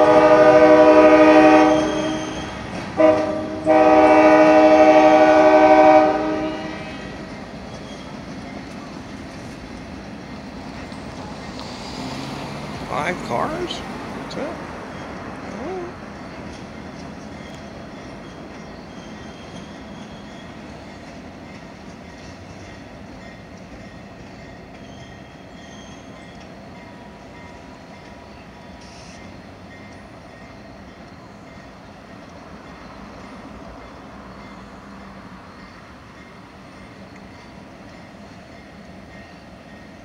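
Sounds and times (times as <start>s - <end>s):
train wheels rumbling on rail: 0.0s - 40.0s
high wheel squeals: 0.8s - 3.8s, 6.3s - 10.4s, 14.8s - 31.8s.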